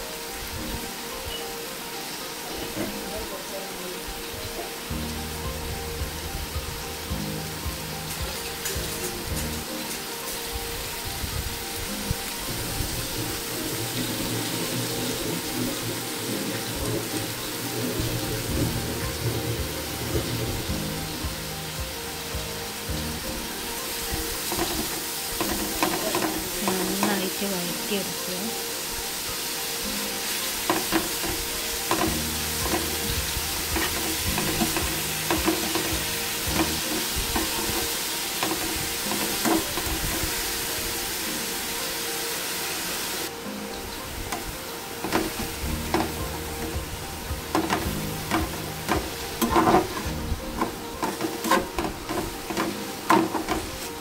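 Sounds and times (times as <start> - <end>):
onions sizzling in oil: 0.0 - 54.0
spatula scraping a pan: 23.7 - 27.4, 30.2 - 40.7, 45.0 - 54.0.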